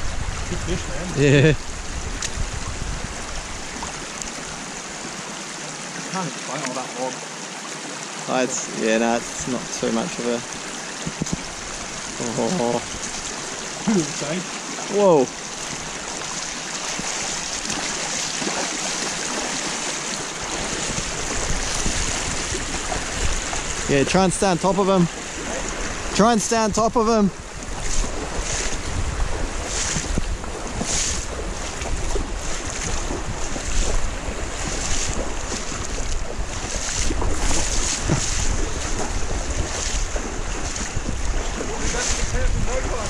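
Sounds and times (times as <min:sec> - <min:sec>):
wind rumbling on microphone: 0:00.0 - 0:05.2, 0:09.2 - 0:14.4, 0:15.6 - 0:43.0
wading steps splashing in water: 0:00.7 - 0:43.0
river rushing over rocks: 0:03.2 - 0:43.0.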